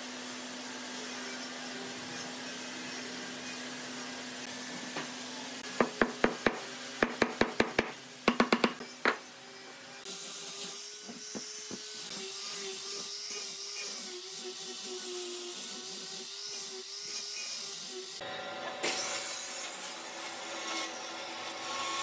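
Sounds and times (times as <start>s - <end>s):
sharp knocks: 5.8s - 9.2s.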